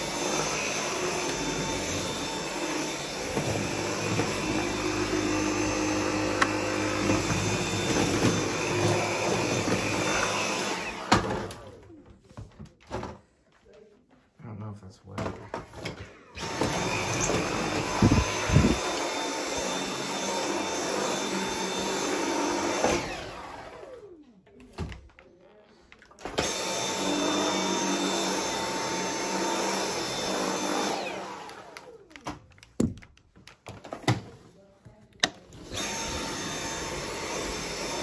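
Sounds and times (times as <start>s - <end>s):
vacuum cleaner running: 0.0s - 12.2s, 16.2s - 24.3s, 26.1s - 32.3s, 35.2s - 38.0s.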